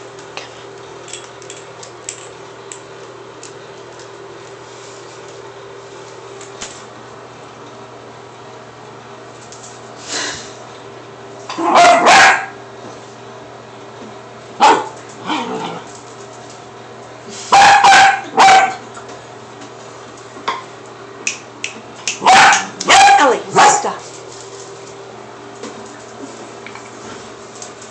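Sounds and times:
dog barking: 11.6 - 12.6, 14.6 - 15.0, 17.5 - 18.8, 22.2 - 24.0.

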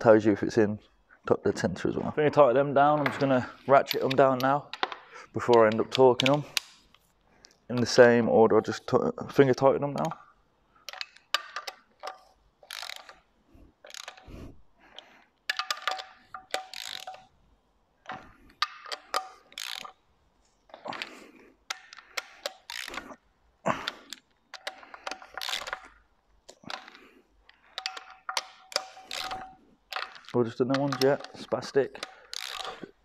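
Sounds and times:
ratchet pawl clicking: 10.9 - 13.2, 13.8 - 14.4, 15.5 - 17.3, 18.1 - 20.0, 21.7 - 23.2, 23.8 - 26.0, 27.7 - 33.0.

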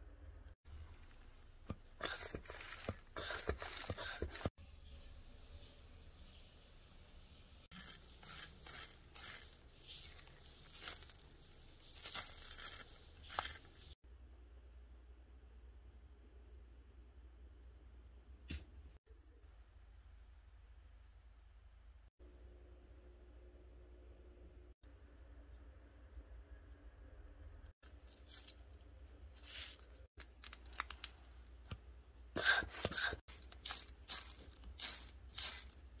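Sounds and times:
tape bubble crinkling and crackling: 7.7 - 14.0, 27.8 - 31.8.

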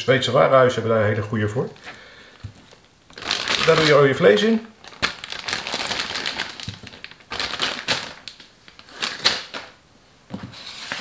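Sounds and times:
plastic bag crinkling: 2.4 - 9.8.

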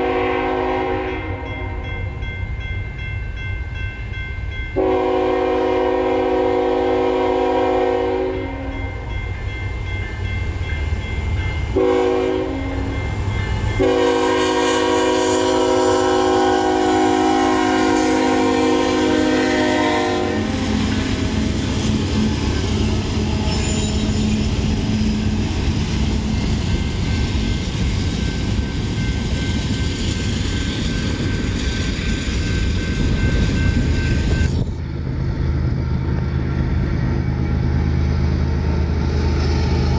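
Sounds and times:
train horn blasts: 0.0 - 2.2, 4.8 - 9.0, 11.7 - 13.0, 13.7 - 25.5
diesel train rumbling past: 0.0 - 39.9.

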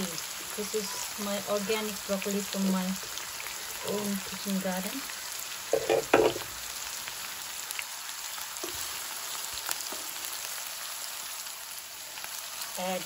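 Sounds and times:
food sizzling in a pan: 0.0 - 13.0
loud knocks: 5.7 - 6.5.

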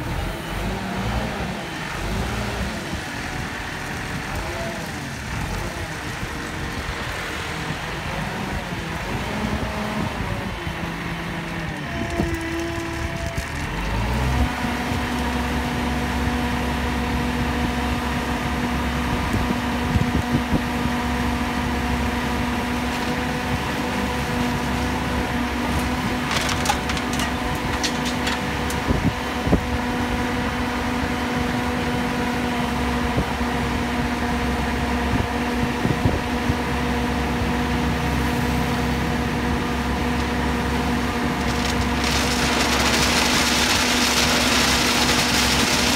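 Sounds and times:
diesel engine droning: 0.0 - 45.9
gravel crunching and clicking: 11.3 - 15.8, 22.6 - 29.2, 39.6 - 45.9.

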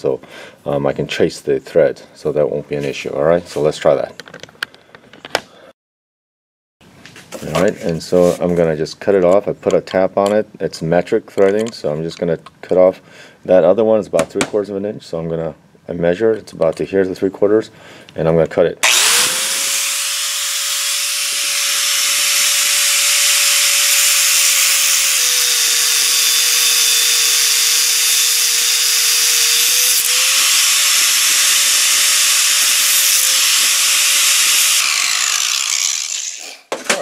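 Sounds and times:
cutoff wheel grinding metal: 18.8 - 36.7.

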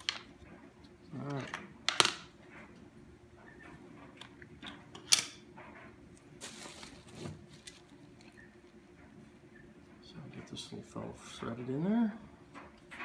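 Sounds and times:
plastic rustle: 6.3 - 8.4.

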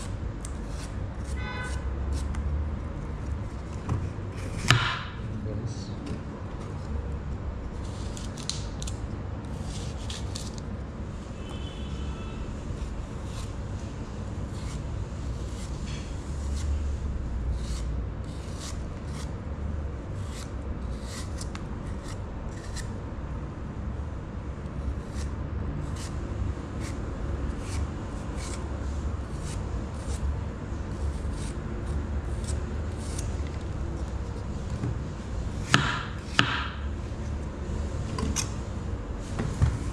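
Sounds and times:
knife scraping through apple: 0.0 - 2.5, 3.4 - 4.9, 7.8 - 10.6, 11.4 - 19.4, 20.2 - 23.0, 24.8 - 34.7
steady low hum: 0.0 - 39.9.

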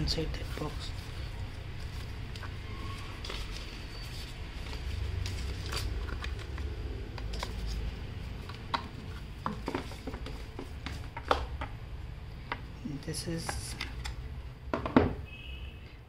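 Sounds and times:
paperboard box rustling: 0.4 - 11.3.

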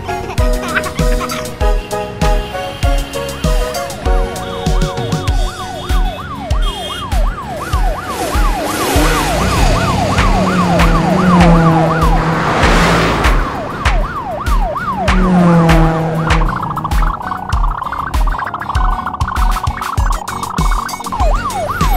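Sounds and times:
background music with beat: 0.0 - 21.9
police siren yelping: 4.1 - 12.4, 13.4 - 21.9
whooshing rush: 7.8 - 17.7.

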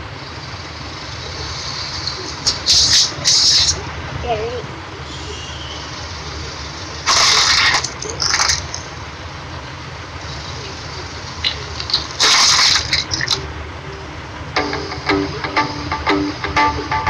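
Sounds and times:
car engine idling: 0.0 - 3.2, 7.9 - 17.0.

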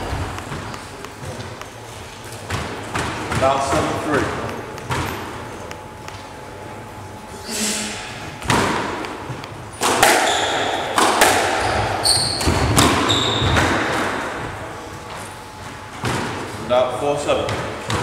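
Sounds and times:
squash ball hits: 0.0 - 6.2, 8.4 - 14.6, 15.9 - 16.5, 17.4 - 18.0.

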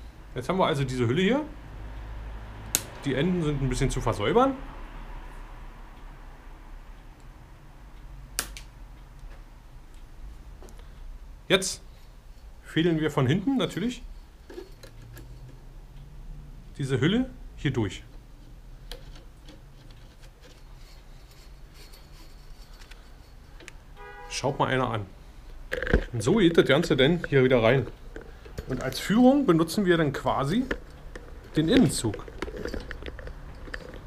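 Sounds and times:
brake cable clicking: 30.2 - 34.0.

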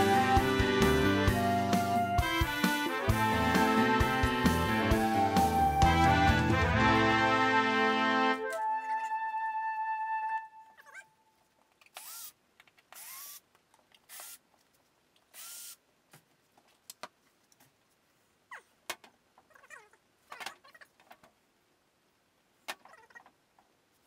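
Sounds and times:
cordless drill motor whine: 12.0 - 12.3, 13.0 - 13.4, 15.4 - 15.8.

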